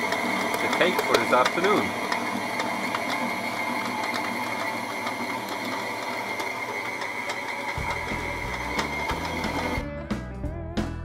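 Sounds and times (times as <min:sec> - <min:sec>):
stand mixer motor whine: 0:00.0 - 0:09.8.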